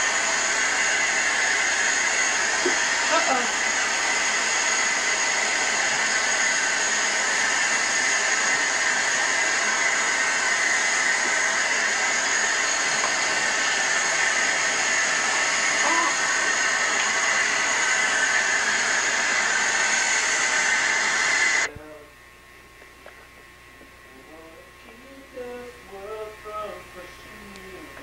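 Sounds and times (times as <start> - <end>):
water running from a faucet: 0.0 - 21.7.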